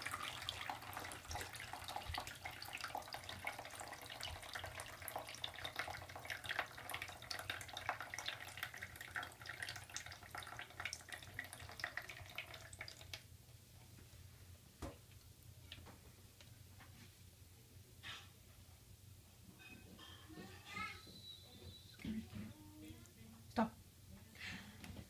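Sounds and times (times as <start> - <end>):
water dripping between cups: 0.0 - 13.2.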